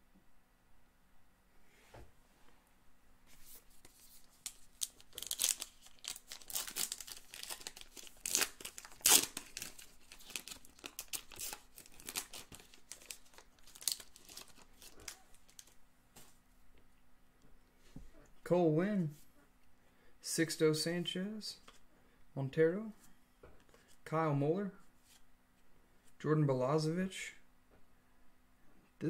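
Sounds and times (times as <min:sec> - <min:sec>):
paper wrapper ripping: 0:03.8 - 0:15.8
wrapper crinkling: 0:03.8 - 0:15.8.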